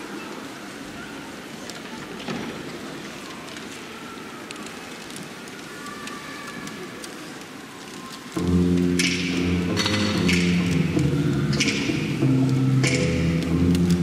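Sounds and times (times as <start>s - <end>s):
gym hall background hiss: 0.0s - 14.0s
faint clicks: 1.6s - 14.0s.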